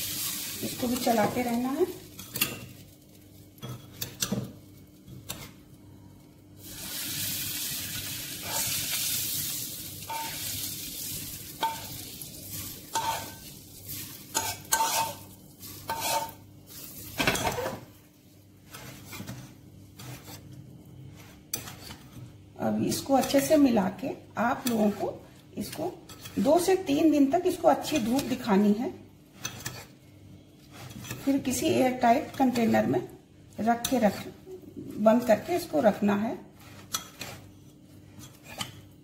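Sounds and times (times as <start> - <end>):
hot oil sizzling: 0.0 - 3.6, 6.5 - 17.4.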